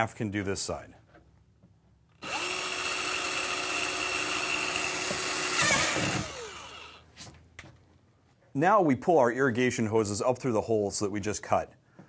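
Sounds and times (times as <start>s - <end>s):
power drill boring through plastic: 2.2s - 7.0s.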